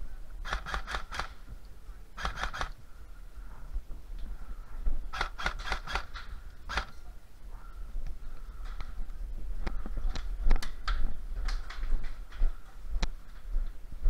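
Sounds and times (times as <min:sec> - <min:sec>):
airsoft guns firing: 0:00.4 - 0:01.4, 0:05.1 - 0:06.9.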